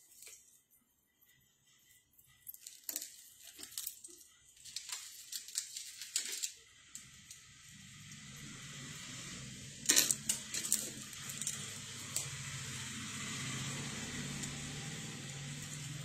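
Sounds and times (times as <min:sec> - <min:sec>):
jewellery clinking: 0:02.4 - 0:07.4, 0:09.8 - 0:12.3.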